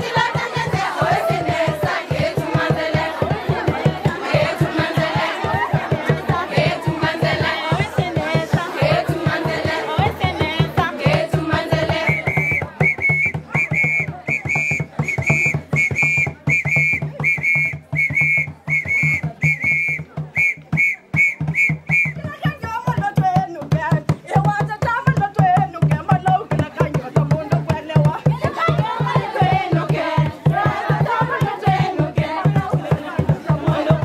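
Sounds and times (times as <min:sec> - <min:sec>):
girls singing: 0:00.0 - 0:12.5, 0:28.0 - 0:34.0
drum beating steady rhythm: 0:00.0 - 0:34.0
whistle blasts: 0:12.0 - 0:22.2.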